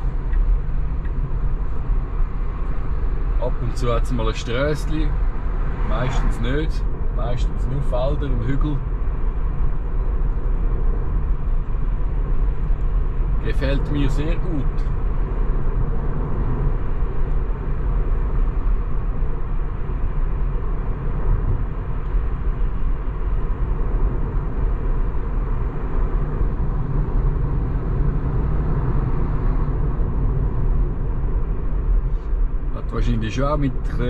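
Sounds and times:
tyre and wind noise in car: 0:00.0 - 0:34.0.

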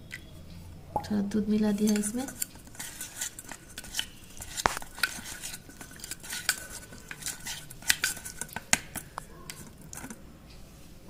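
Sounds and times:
spoon clinking and scraping bowl: 0:01.6 - 0:10.2.

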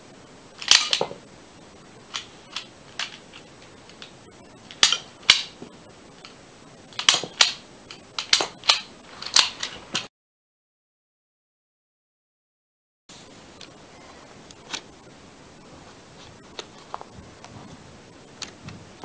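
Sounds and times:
toy pistol plastic clicks and snaps: 0:00.6 - 0:01.1, 0:02.1 - 0:03.2, 0:04.7 - 0:05.6, 0:07.0 - 0:09.8.

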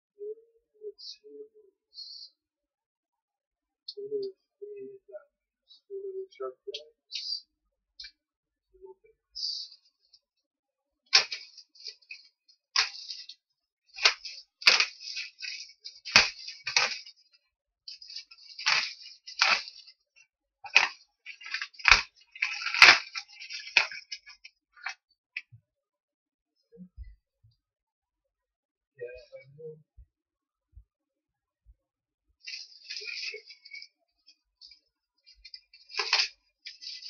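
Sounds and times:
plastic wrap crinkling and tearing: 0:11.2 - 0:13.4, 0:14.0 - 0:17.2, 0:17.9 - 0:20.0, 0:20.7 - 0:24.9, 0:32.5 - 0:33.9, 0:35.4 - 0:37.0.

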